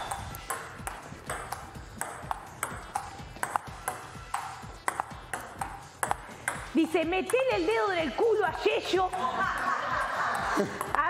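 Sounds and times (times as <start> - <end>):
table tennis ball clicking: 0.0 - 7.6
background music: 0.0 - 11.0.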